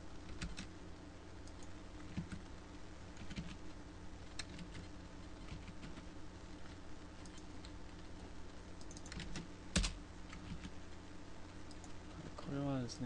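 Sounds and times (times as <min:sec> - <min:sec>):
low electrical hum: 0:00.0 - 0:13.0
keyboard and mouse clicks: 0:07.2 - 0:07.8, 0:08.8 - 0:10.7, 0:11.6 - 0:12.0.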